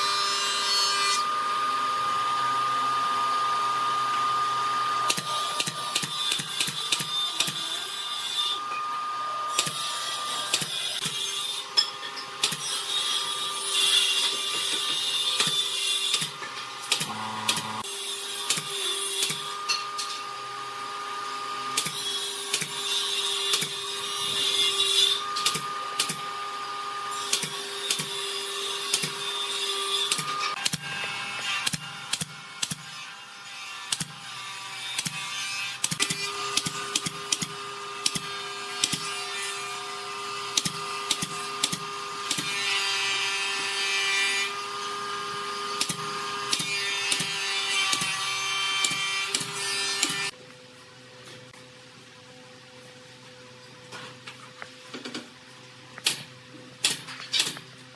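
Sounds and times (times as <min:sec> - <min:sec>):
nail gun firing: 0:15.4 - 0:17.8, 0:56.0 - 0:57.6.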